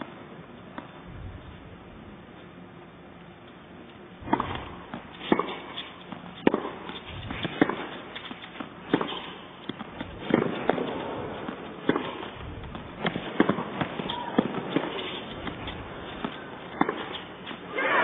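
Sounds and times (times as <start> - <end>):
tennis ball knocks off rackets: 4.2 - 5.8, 6.4 - 17.3.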